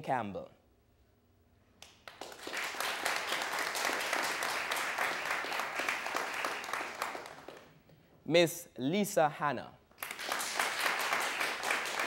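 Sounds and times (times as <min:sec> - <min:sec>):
audience applauding: 0:02.0 - 0:07.7, 0:10.0 - 0:12.0.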